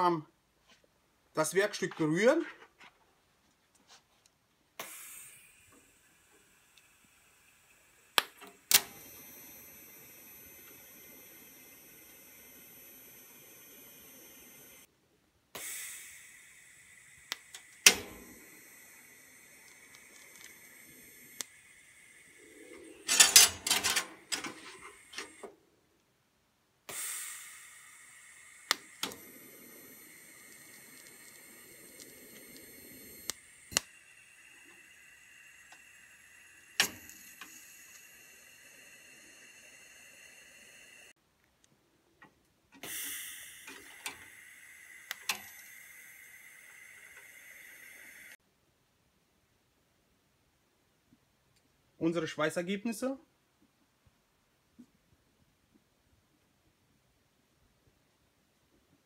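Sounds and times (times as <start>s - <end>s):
electrode ticks: 4.8s - 14.9s, 26.9s - 41.1s, 43.0s - 48.4s
welder click: 4.8s - 14.9s, 15.6s - 25.5s, 26.9s - 41.1s, 42.8s - 48.4s
welding arc hissing: 4.8s - 14.9s, 15.6s - 25.5s, 26.9s - 41.2s, 42.8s - 48.4s.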